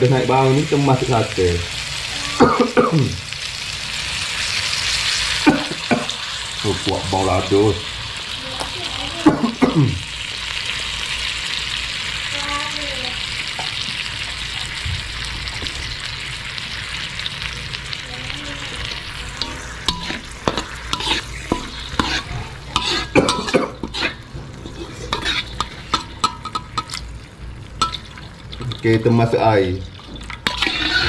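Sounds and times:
coconut milk sizzling in a pan: 0:00.0 - 0:31.0
metal spatula scraping a pan: 0:19.0 - 0:28.8, 0:29.9 - 0:31.0.

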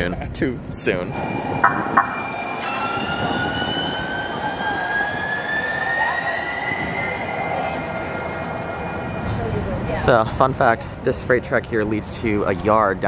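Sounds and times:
train rolling rumble: 0:00.0 - 0:13.0
electric traction motor whine: 0:01.1 - 0:10.0.

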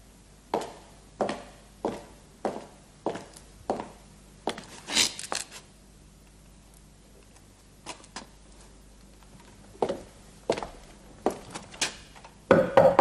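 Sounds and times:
footsteps on tiled floor: 0:00.5 - 0:05.6, 0:07.8 - 0:11.7.

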